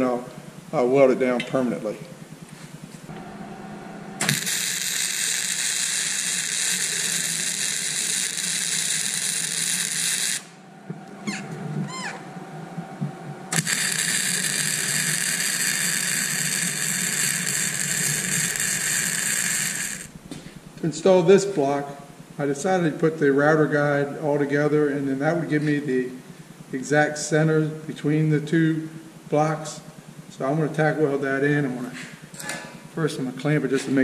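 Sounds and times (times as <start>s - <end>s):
welding arc crackling hiss: 2.5s - 11.1s, 12.8s - 22.2s.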